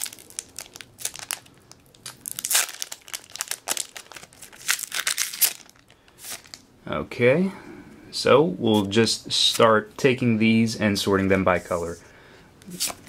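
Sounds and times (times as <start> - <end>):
foil wrapper crinkling: 0.0 - 6.6.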